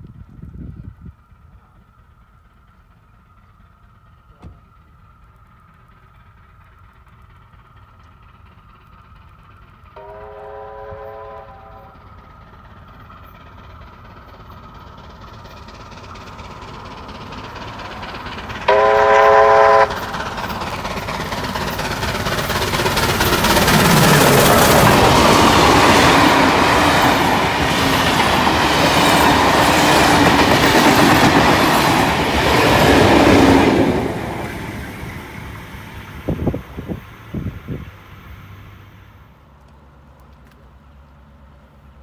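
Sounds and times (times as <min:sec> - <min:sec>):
train running: 0:00.0 - 0:42.0
steam locomotive whistle: 0:10.0 - 0:12.1, 0:18.7 - 0:20.0.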